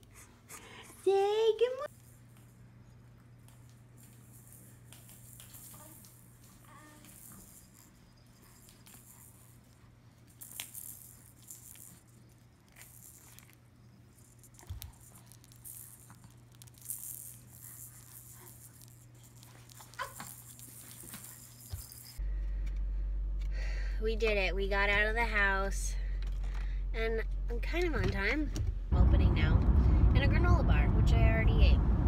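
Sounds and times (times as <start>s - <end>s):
baby toys rattling and clicking: 3.5s - 22.2s.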